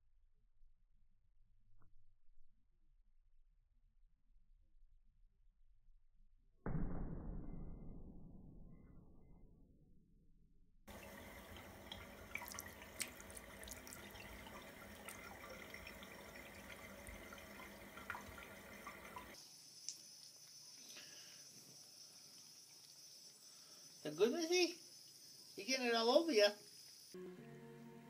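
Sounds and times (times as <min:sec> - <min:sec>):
tap water running into sink: 0:10.9 - 0:19.4
small clicks and splashes: 0:10.9 - 0:23.3.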